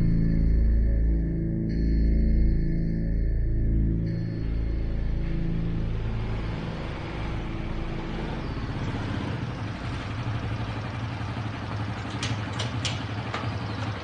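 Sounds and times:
background music: 0:00.0 - 0:09.6
small motorcycle engine running: 0:04.4 - 0:14.0.

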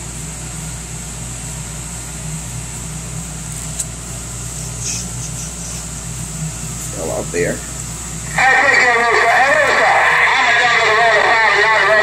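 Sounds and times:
radio static hiss: 0:04.6 - 0:12.0.

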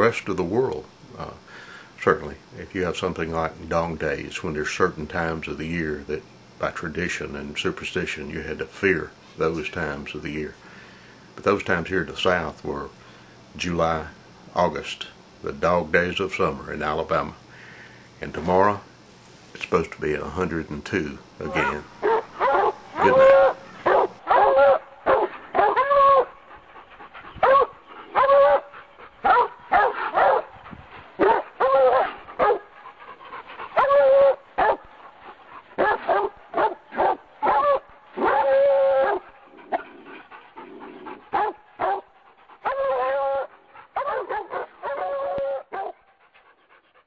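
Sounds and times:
dog barking and yelping: 0:21.5 - 0:26.4, 0:27.2 - 0:30.6, 0:31.2 - 0:46.0
dog whining barks: 0:21.5 - 0:26.4, 0:27.4 - 0:30.5, 0:31.2 - 0:32.6, 0:33.8 - 0:34.8, 0:35.8 - 0:40.0, 0:40.7 - 0:42.0, 0:42.6 - 0:46.0.

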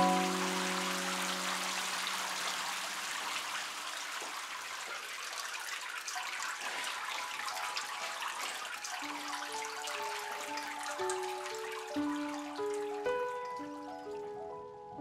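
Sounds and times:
music: 0:00.0 - 0:02.4, 0:06.6 - 0:15.0.

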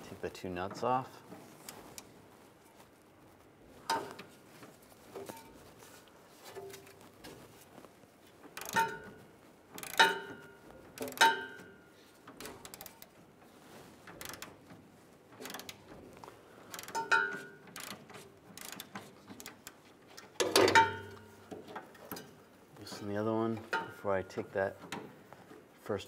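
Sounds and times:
ratchet clicks: 0:08.6 - 0:10.4, 0:11.0 - 0:11.6, 0:12.4 - 0:13.1, 0:14.0 - 0:14.6, 0:15.4 - 0:15.9, 0:16.7 - 0:19.8.

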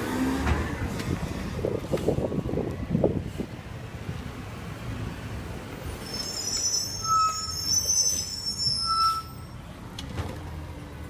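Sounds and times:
high-pitched brake squeal: 0:05.9 - 0:09.6
short brake squeaks: 0:06.0 - 0:09.6.

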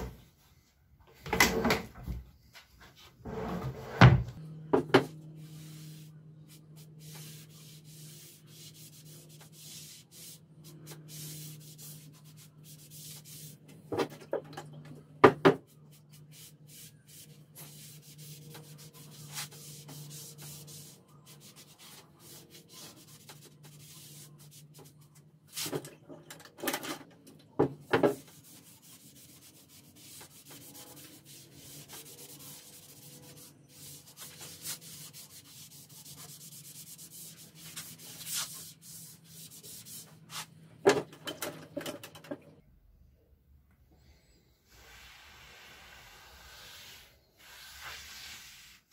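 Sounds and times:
sandpaper rubbing on wood: 0:16.1 - 0:24.8, 0:28.3 - 0:40.5.

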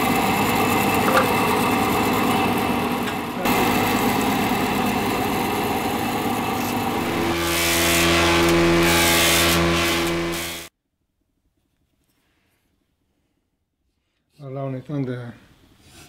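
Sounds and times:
deep humming machine with hiss: 0:00.0 - 0:10.7
woodworking power machinery running: 0:00.0 - 0:10.7.

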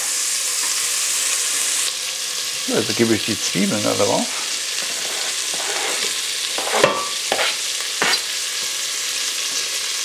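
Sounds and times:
onions and bacon sizzling in fat: 0:00.0 - 0:10.0
utensil scraping and knocking pot: 0:04.2 - 0:08.3.

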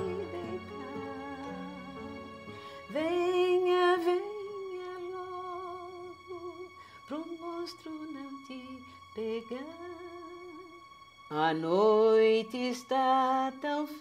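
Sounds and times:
soft background music: 0:00.0 - 0:14.0.

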